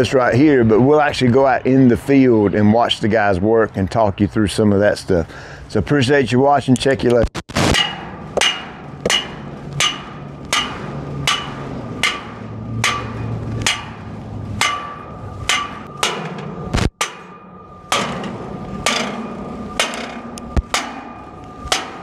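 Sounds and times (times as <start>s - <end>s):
hammer blows with metallic ring: 7.8s - 22.0s.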